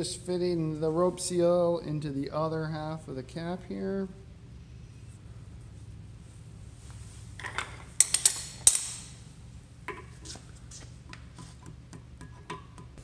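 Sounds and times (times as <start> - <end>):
metal parts clinking and knocking: 7.4 - 9.2
sharp metal clanks: 7.4 - 9.2.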